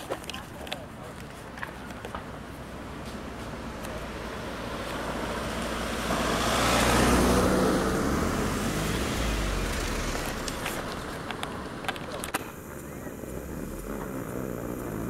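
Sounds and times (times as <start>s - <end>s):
car driving past: 3.5s - 11.9s.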